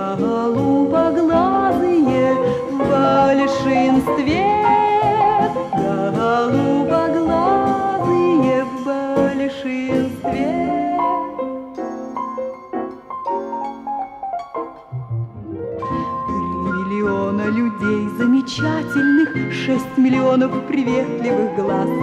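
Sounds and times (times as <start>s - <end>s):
pop song with woman singing: 0.0s - 11.7s, 16.0s - 22.0s.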